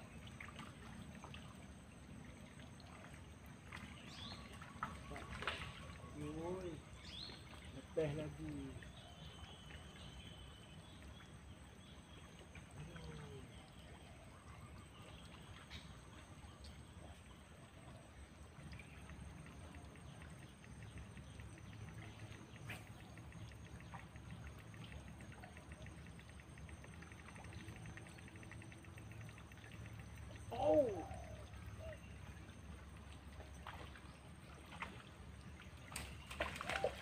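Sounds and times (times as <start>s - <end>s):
low steady rumble: 0.0s - 37.0s
faint bird calls: 12.4s - 32.6s, 36.0s - 37.0s.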